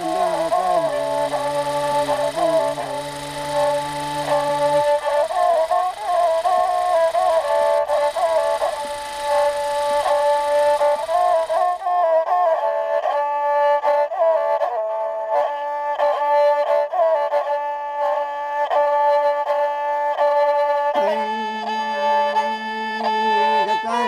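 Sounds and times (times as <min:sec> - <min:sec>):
bowed folk fiddle melody: 0:00.0 - 0:24.0
lower fiddle part: 0:00.0 - 0:24.0.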